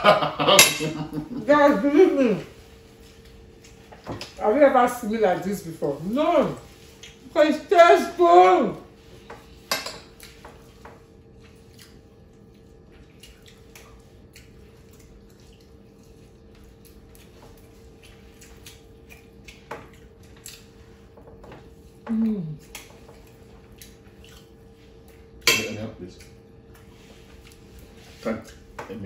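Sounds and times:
faint steady hum: 0.0s - 29.0s
person humming with enjoyment: 22.1s - 22.6s.

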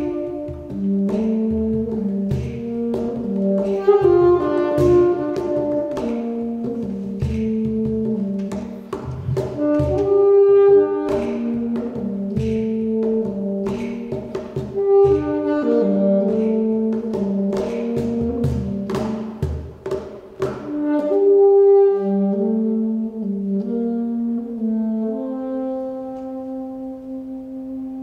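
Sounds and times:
cajon beat: 0.0s - 21.8s
saxophone melody: 0.0s - 28.0s.

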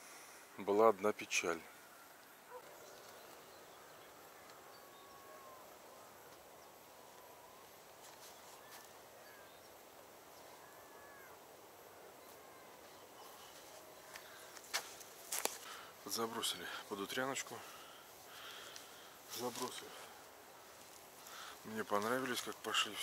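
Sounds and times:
short bird calls: 10.4s - 13.7s.

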